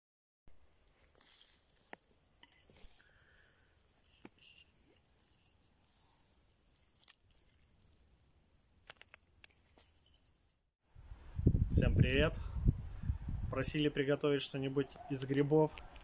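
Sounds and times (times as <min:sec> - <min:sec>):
crackles of dry forest litter: 0:00.8 - 0:03.8, 0:05.6 - 0:10.2, 0:14.9 - 0:16.0.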